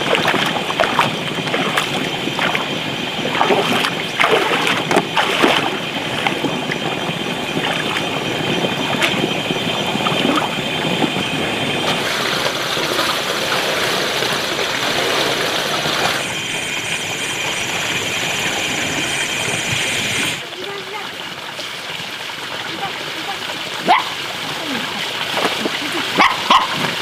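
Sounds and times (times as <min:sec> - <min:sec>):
water sloshing from wading: 0:00.0 - 0:17.6
steady high chirring: 0:00.0 - 0:21.0.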